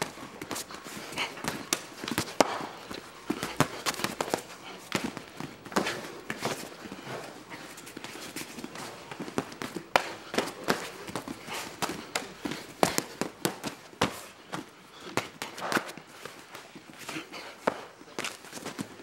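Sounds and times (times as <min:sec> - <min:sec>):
bare feet on foam mat: 0:00.0 - 0:19.0
punches and kicks smacking pads: 0:01.4 - 0:06.6.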